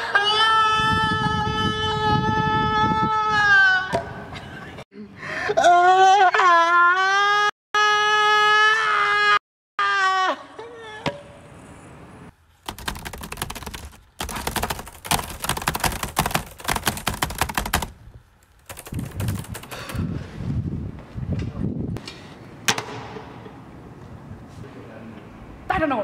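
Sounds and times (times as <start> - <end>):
rapid sharp clicks: 12.6 - 20.0.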